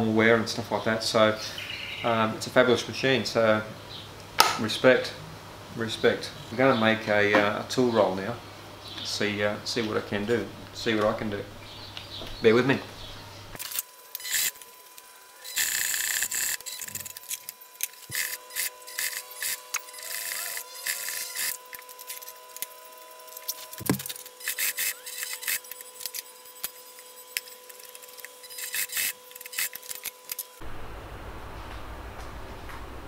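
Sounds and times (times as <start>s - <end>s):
needle mechanism clattering rapidly: 15.4s - 30.6s.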